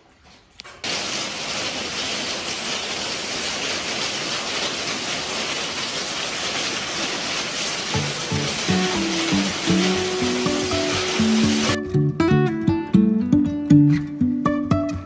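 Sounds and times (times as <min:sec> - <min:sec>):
heavy rain on paving: 0:00.8 - 0:11.8.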